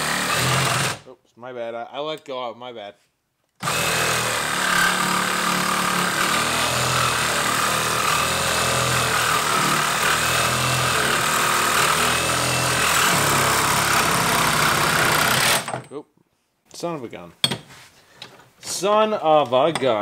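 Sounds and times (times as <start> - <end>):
reciprocating saw cutting metal pipe: 0.0 - 1.0, 3.6 - 15.7.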